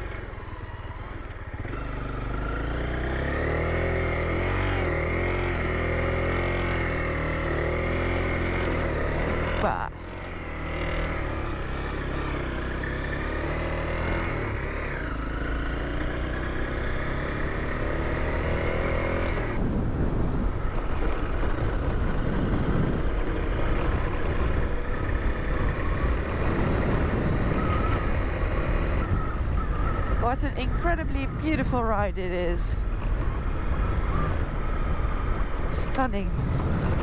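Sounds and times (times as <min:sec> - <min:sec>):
motorcycle engine running: 0:00.0 - 0:37.0
wind noise: 0:18.5 - 0:37.0.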